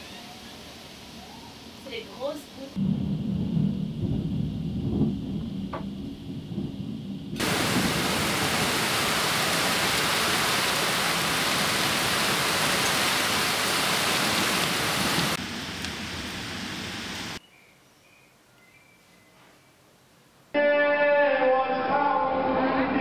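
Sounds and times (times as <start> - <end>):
low thunder rumble: 2.8 - 10.3
heavy rain pouring: 2.8 - 17.4.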